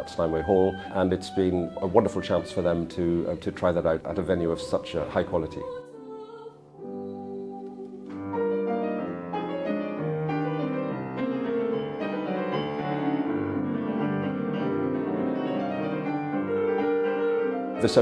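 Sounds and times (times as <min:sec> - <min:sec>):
solo piano classical piece: 0:06.6 - 0:18.0.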